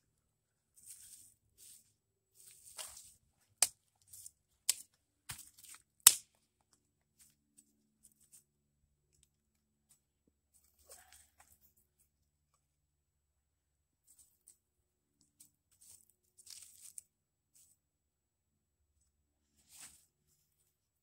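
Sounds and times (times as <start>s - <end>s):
dry leaves rustling: 0.8s - 3.2s, 15.7s - 17.0s
sticks snapping: 4.7s - 6.4s.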